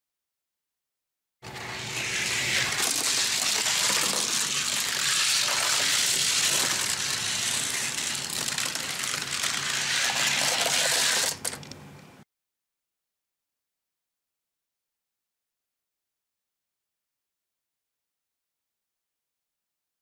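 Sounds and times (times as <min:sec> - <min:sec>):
small wheels hissing on track: 0:01.6 - 0:11.6.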